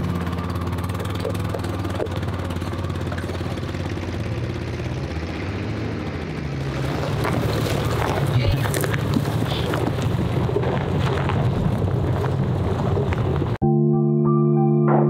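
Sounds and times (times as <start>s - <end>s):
vehicle engine running: 0.0s - 13.6s.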